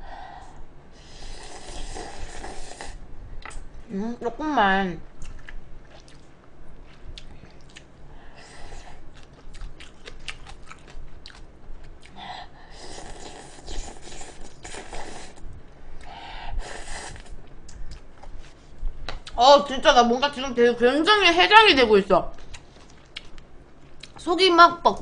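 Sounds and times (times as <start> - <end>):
person slurping noodles: 1.0 - 3.0, 12.7 - 15.4, 16.6 - 17.3
chewing with mouth clicks: 5.2 - 7.9, 9.1 - 12.2, 22.4 - 24.2.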